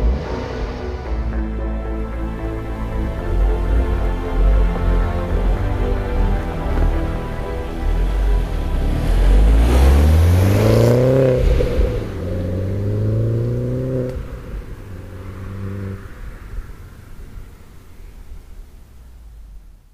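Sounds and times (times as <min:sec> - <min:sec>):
car engine accelerating hard: 0:00.0 - 0:19.8.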